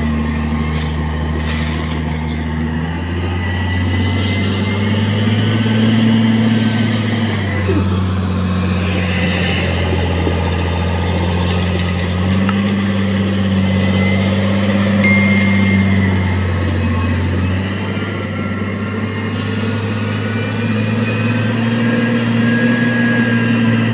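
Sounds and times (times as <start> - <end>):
wheel loader diesel engine: 0.0 - 14.6.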